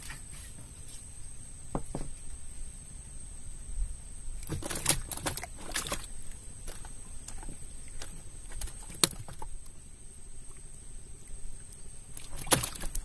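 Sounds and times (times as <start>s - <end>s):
fishing line clicks and rustles: 4.4s - 9.8s, 11.7s - 13.0s.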